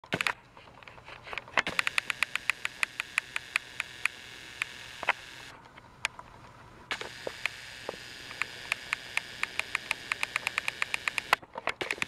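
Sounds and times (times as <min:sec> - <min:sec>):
toy train motor whirring: 0:01.6 - 0:05.6, 0:06.9 - 0:12.0
rhythmic track clicks: 0:08.3 - 0:12.0.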